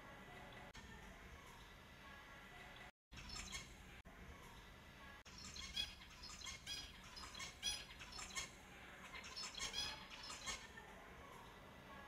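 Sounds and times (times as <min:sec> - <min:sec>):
finches calling: 0:09.1 - 0:10.6.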